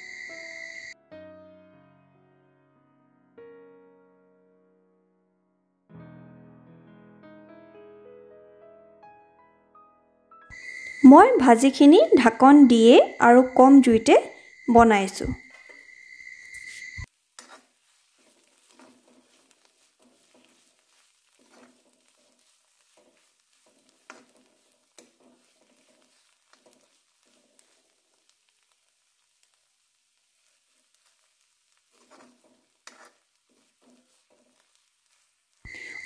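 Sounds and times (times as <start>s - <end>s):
spoon scraping a pan: 10.5s - 36.0s.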